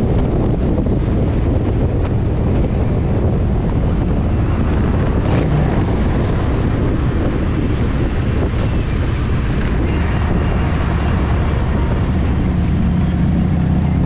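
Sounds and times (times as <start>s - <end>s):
motorcycle engine running: 0.0s - 14.0s
wind on microphone: 0.0s - 14.0s.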